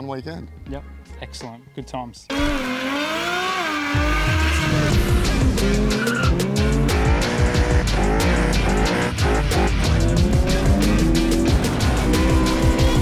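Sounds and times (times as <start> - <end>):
car engines revving: 2.3 - 13.0
music with heavy beat: 4.0 - 13.0.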